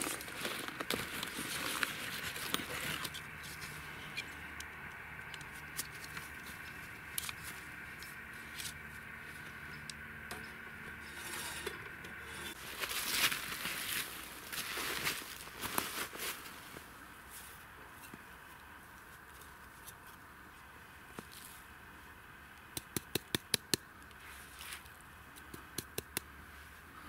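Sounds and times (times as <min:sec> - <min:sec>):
rustling and crunching: 0:00.0 - 0:03.9, 0:10.3 - 0:18.3
knife scraping wood: 0:10.9 - 0:12.6.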